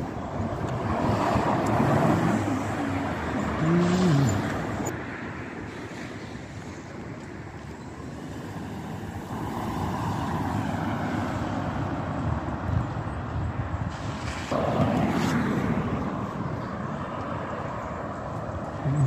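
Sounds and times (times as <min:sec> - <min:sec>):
cars going by: 0:00.0 - 0:19.0.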